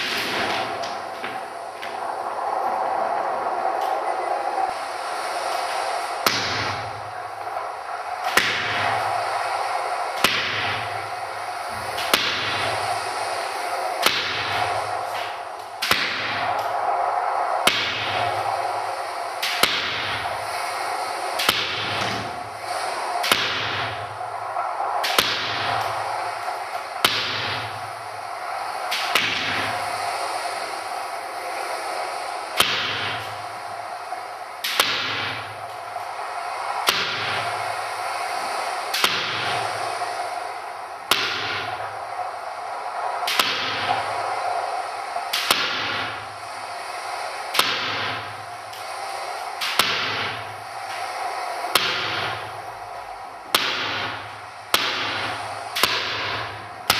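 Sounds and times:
steady hum: 0.0s - 56.9s
sharp percussive cracks: 8.2s - 9.0s, 14.0s - 16.7s, 19.4s - 20.2s, 21.4s - 22.3s, 23.2s - 24.0s, 25.0s - 26.1s, 26.7s - 27.7s, 34.6s - 35.5s, 41.1s - 41.8s, 43.3s - 44.0s, 47.5s - 48.9s, 49.6s - 50.4s, 53.5s - 56.9s.

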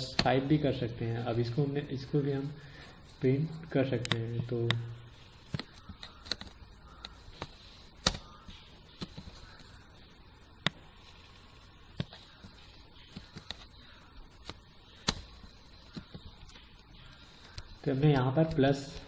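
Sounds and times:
faint steady hiss: 0.0s - 19.0s
mouse clicks: 4.0s - 4.8s, 5.4s - 9.8s, 10.5s - 10.9s, 11.9s - 19.0s.

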